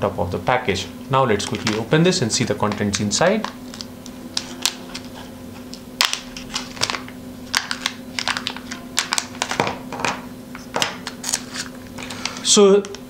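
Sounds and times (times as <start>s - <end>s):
plastic bag crinkling: 1.3s - 10.0s, 10.7s - 12.4s.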